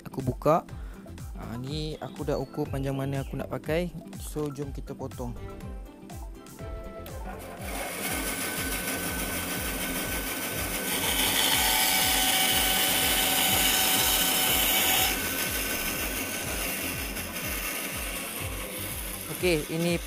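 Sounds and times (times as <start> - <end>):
power saw cutting wood: 7.1 - 20.0.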